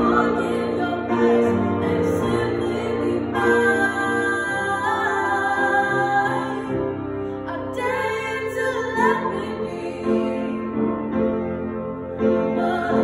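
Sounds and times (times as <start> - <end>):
woman singing pop ballad: 0.0 - 6.7
upright piano: 0.0 - 13.0.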